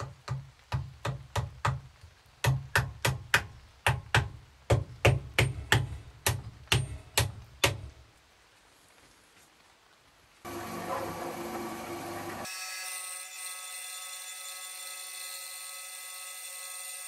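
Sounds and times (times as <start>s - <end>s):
mallet knocking wooden wedge: 0.0s - 7.8s.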